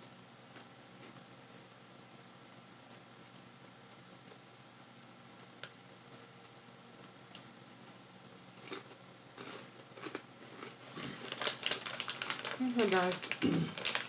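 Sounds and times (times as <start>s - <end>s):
chips crunching: 5.4s - 14.0s
plastic bag crinkling: 10.5s - 14.0s.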